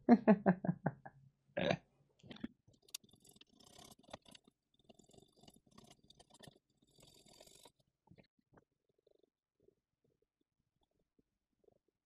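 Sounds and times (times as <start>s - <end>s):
man laughing: 0.1s - 1.1s
faint clicks and scratches: 2.2s - 12.0s.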